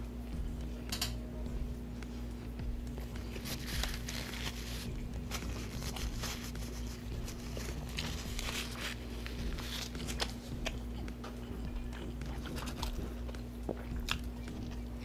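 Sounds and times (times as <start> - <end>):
paper napkin rustling: 2.9 - 10.6.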